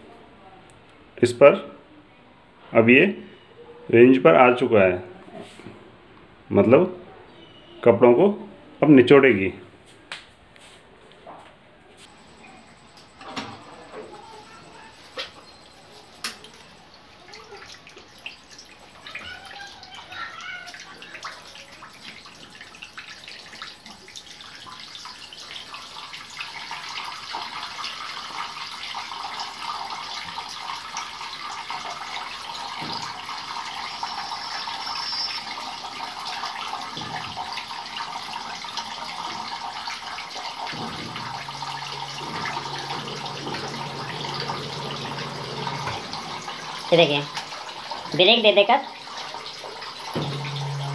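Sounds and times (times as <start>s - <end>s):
washing machine motor hum: 12.0s - 50.9s
water rushing through drain hose: 14.1s - 50.9s.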